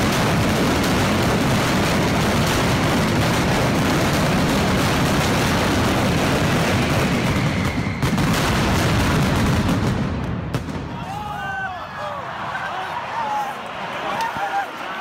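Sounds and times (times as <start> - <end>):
firecrackers barrage: 0.0 - 11.7.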